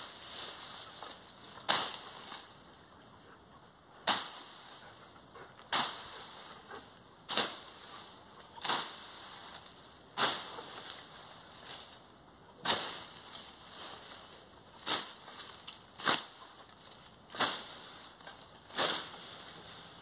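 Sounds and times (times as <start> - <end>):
tool chopping into grass: 1.0 - 2.4, 4.0 - 4.5, 5.7 - 6.1, 7.3 - 7.8, 8.6 - 9.0, 10.2 - 10.6, 12.6 - 13.1, 14.8 - 16.4, 17.3 - 17.7, 18.3 - 19.2.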